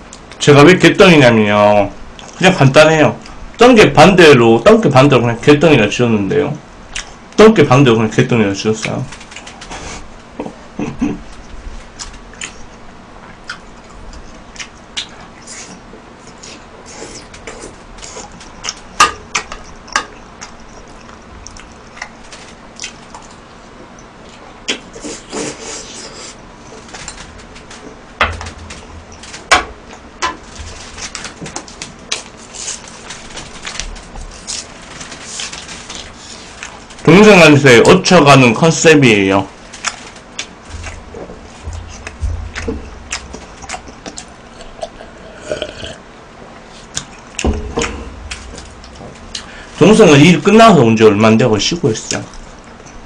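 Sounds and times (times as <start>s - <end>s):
person chewing: 11.3s - 22.2s, 22.8s - 23.4s, 39.8s - 46.0s.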